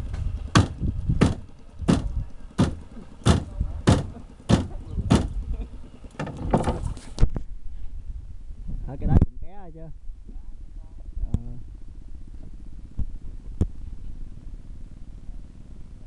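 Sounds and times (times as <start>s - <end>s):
low steady rumble: 0.0s - 16.0s
sharp knocks: 0.1s - 5.4s, 6.2s - 6.9s.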